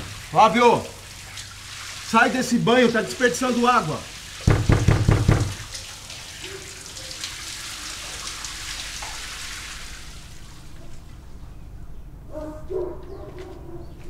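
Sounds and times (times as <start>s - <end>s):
shower running: 0.0s - 11.4s
fist knocking on door: 4.4s - 5.6s.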